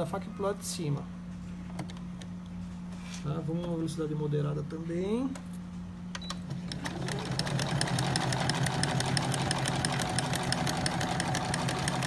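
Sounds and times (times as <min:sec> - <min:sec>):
sewing machine stitching: 0:06.5 - 0:12.0.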